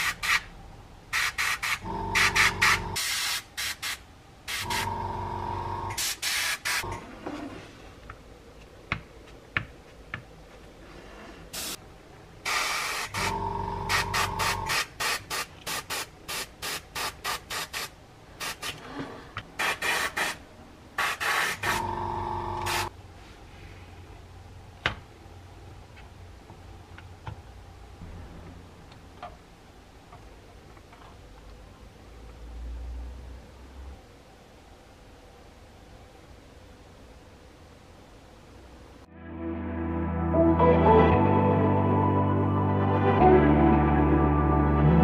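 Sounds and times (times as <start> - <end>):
airbrush hissing bursts: 0.0 - 0.5, 1.1 - 5.0, 5.9 - 6.9, 11.5 - 11.8, 12.5 - 18.8, 19.6 - 20.4, 21.0 - 21.9, 22.5 - 22.9
compressor humming: 1.8 - 3.0, 4.5 - 6.1, 12.5 - 14.8, 21.6 - 22.9.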